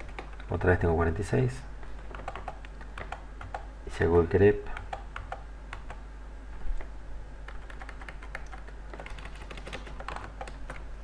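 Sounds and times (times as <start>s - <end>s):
low steady hum: 0.0s - 11.0s
keyboard keystrokes: 2.1s - 3.7s, 7.5s - 10.8s.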